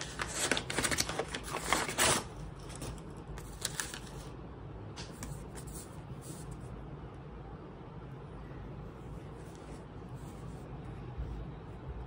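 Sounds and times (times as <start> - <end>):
paper mailer rustling: 0.0 - 4.3.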